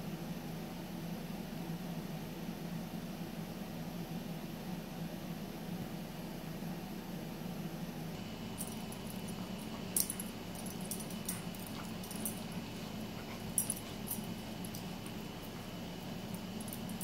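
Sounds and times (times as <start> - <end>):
steady low hum: 0.0 - 17.0
light clicks and jingles: 8.2 - 17.0.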